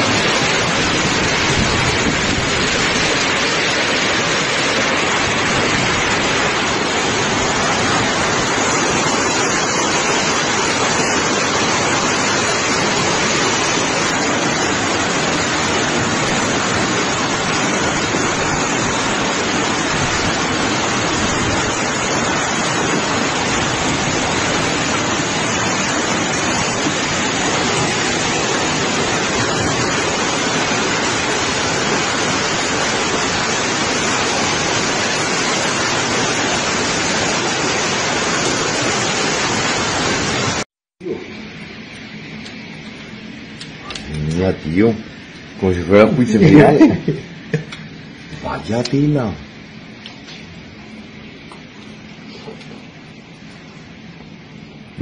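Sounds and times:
hail and rain pelting street: 0.0 - 40.6.

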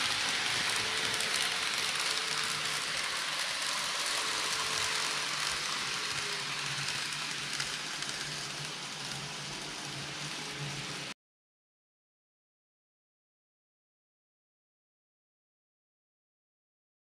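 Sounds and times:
model train wheels rolling on rail: 0.0 - 11.2.

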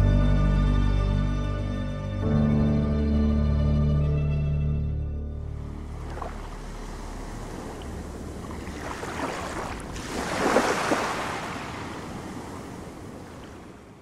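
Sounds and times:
ocean waves washing: 5.4 - 14.0.

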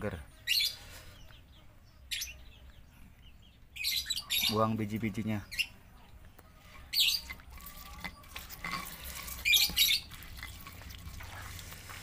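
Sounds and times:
pestle squelching in stone mortar: 6.6 - 12.0.

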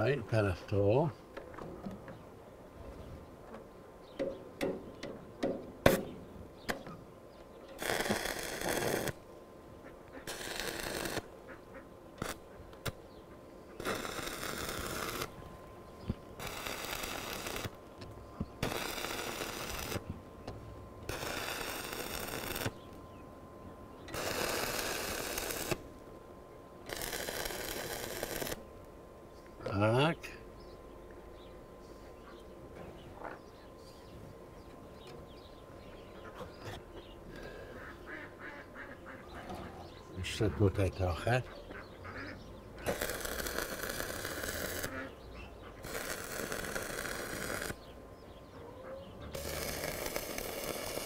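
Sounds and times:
arc welding crackling hiss: 7.8 - 9.2, 10.1 - 11.3, 12.2 - 13.0, 13.8 - 15.4, 16.0 - 20.1, 21.0 - 23.0, 24.1 - 25.9, 26.8 - 28.6, 42.8 - 47.9, 49.3 - 51.0.

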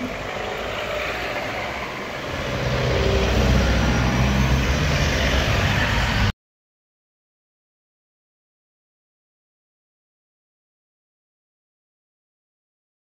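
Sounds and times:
cars driving over level crossing: 0.0 - 6.3.

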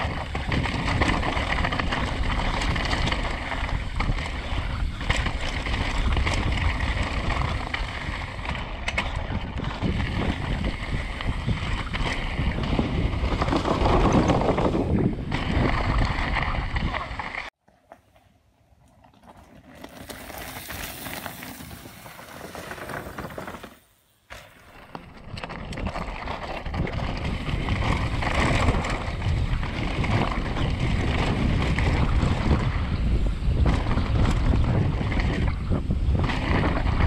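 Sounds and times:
bike rattling: 0.0 - 17.5, 18.8 - 37.0
wind buffeting microphone: 0.0 - 17.5, 25.0 - 37.0
tyres on gravel: 0.0 - 35.5.

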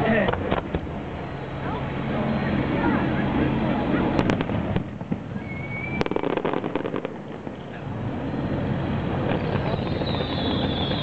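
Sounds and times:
fireworks rushing noise: 1.9 - 11.0
fireworks cracking and popping: 4.2 - 7.8, 9.2 - 11.0
high fireworks whistle: 5.3 - 7.1, 9.3 - 11.0.

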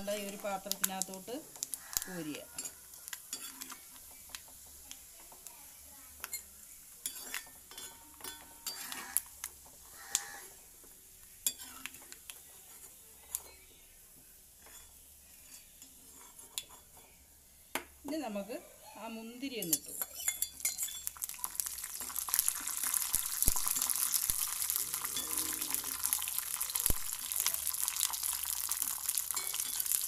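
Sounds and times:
faint sizzle of hot fat: 0.0 - 30.0
metal ladle scraping and clinking: 7.0 - 9.2, 19.6 - 21.2, 24.9 - 26.3, 29.3 - 30.0.

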